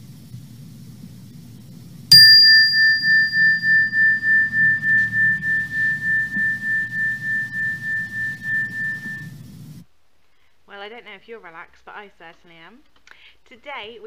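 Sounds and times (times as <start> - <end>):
metal chime bar ringing: 2.1 - 9.2.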